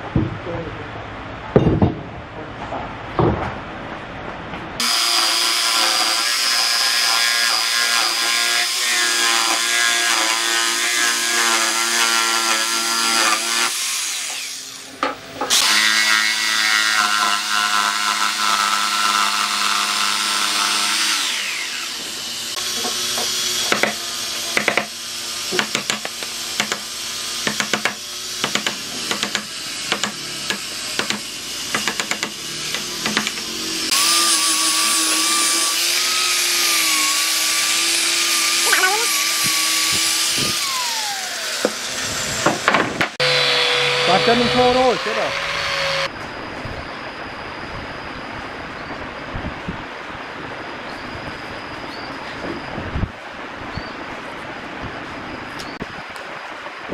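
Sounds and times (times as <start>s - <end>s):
angle grinder running: 4.8s - 14.9s, 15.5s - 46.1s
jigsaw cutting wood: 4.8s - 14.9s, 15.5s - 46.1s
sharp clacks and knocks: 25.6s - 26.8s, 27.5s - 33.5s.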